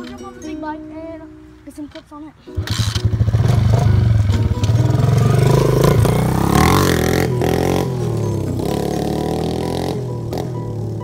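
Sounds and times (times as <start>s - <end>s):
motorbike engine revving: 2.5s - 11.0s.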